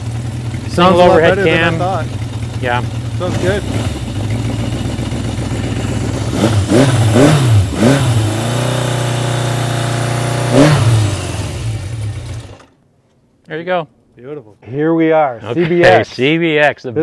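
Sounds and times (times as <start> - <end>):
motorcycle engine revving and idling: 0.0 - 12.8.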